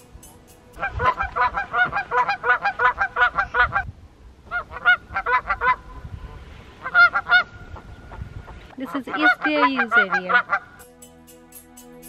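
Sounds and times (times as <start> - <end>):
geese honking: 0.8 - 3.9, 4.5 - 5.8, 6.8 - 10.8.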